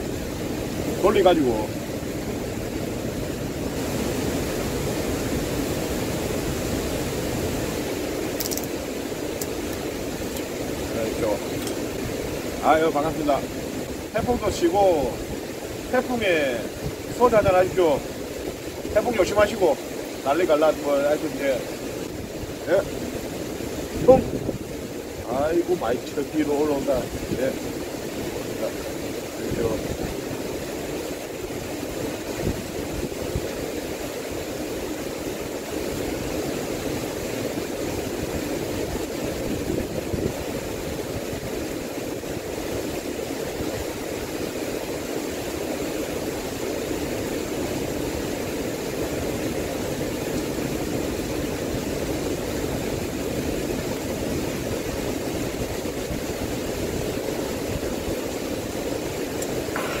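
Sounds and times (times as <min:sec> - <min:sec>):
wind and rain rushing: 0:00.0 - 1:00.0
wind buffeting microphone: 0:21.8 - 0:26.1, 0:26.7 - 0:34.1, 0:35.3 - 0:44.0.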